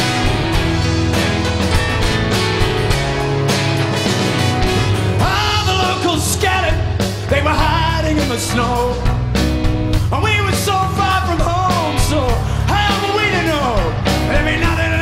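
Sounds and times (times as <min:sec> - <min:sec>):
live rock band playing: 0:00.0 - 0:15.0
man singing: 0:05.2 - 0:09.4, 0:10.0 - 0:15.0.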